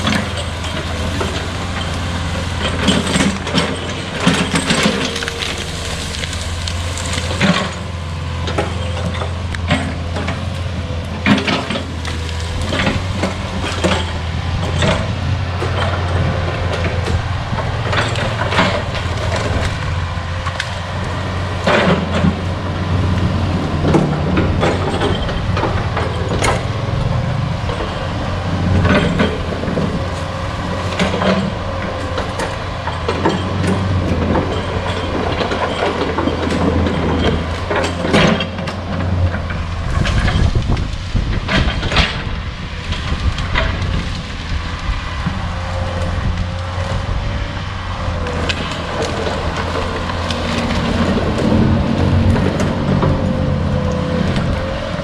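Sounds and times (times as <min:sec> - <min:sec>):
sharp knocks and cracks of stumps: 0:00.0 - 0:20.8
excavator diesel engine running: 0:00.0 - 0:55.0.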